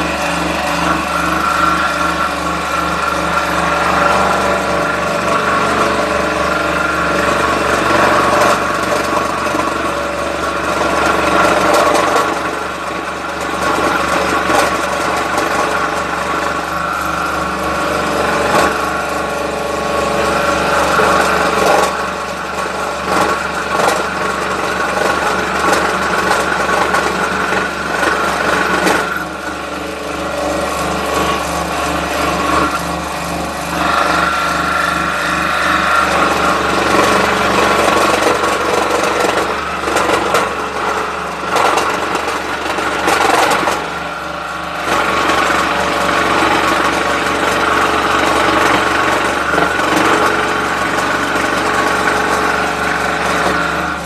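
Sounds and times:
motor hum: 0:00.0 - 0:54.0
scroll saw cutting wood: 0:00.0 - 0:54.0.

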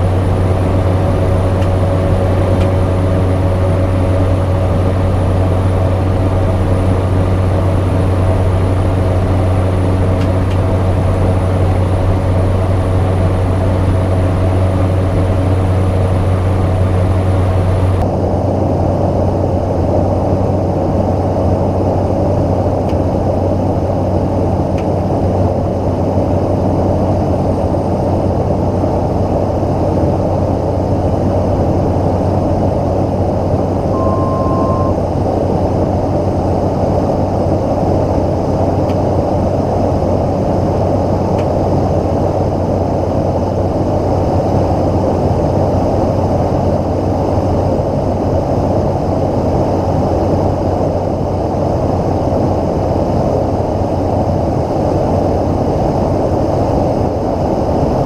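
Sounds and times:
turboprop engine cabin drone: 0:00.0 - 0:58.0
short beep: 0:33.9 - 0:35.0.

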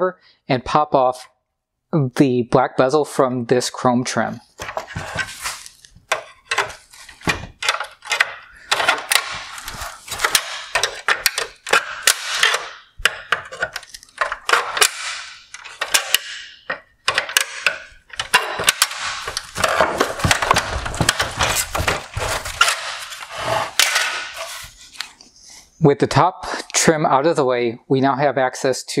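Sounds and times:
plastic scraping and creaking: 0:04.6 - 0:25.2
plastic clips snapping: 0:07.6 - 0:21.3.

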